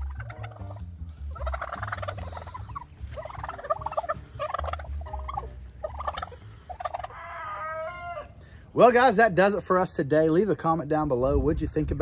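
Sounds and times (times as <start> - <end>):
turkeys gobbling: 0.0 - 8.4.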